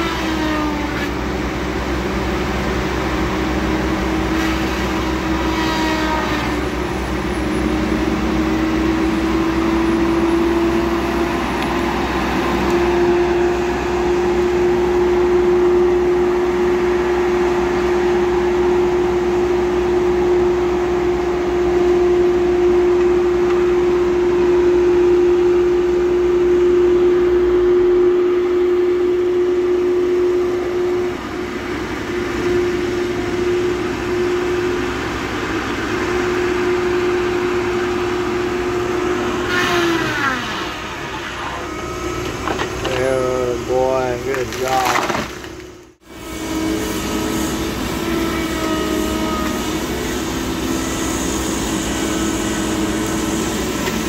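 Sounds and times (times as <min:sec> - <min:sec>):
diesel engine rumble: 0:00.0 - 0:54.0
high machine whine: 0:00.0 - 0:54.0
saw cutting into trunk: 0:03.9 - 0:13.0, 0:42.3 - 0:45.6.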